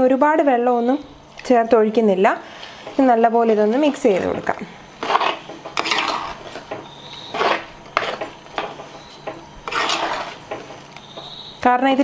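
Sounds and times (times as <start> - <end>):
spoon scraping clay pot: 5.0 - 11.4.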